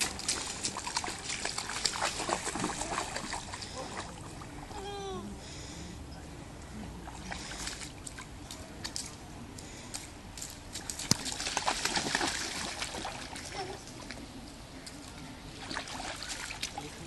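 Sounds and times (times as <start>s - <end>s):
sharp splash or tap: 0.0s - 3.5s, 9.9s - 13.4s
boots splashing in puddle: 0.0s - 4.3s, 7.0s - 9.2s, 9.8s - 14.2s, 14.8s - 17.0s.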